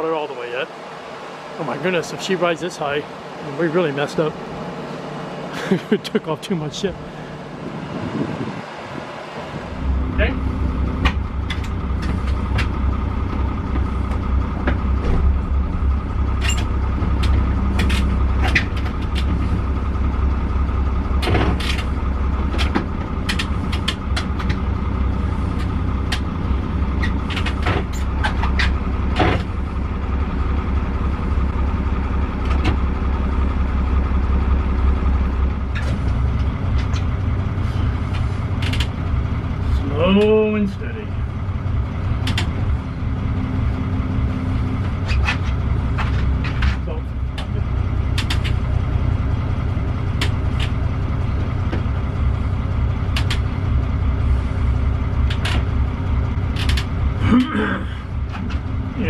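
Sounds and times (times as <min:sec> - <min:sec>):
boat diesel engine humming: 0:00.0 - 0:59.0.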